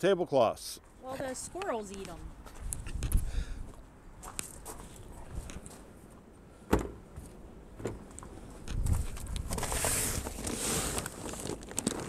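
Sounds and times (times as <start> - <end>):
knocks in storage compartment: 6.7 - 7.0
paper bag crinkling: 9.5 - 12.0.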